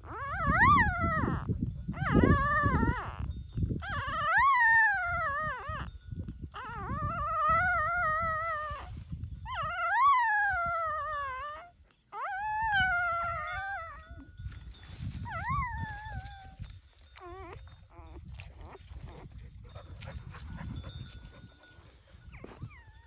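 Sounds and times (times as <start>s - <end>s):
dog whimpering: 0.0s - 14.3s, 15.2s - 23.0s
dog whining: 0.0s - 14.3s, 15.2s - 21.2s, 22.2s - 23.0s
rustling and handling noise: 14.3s - 23.0s.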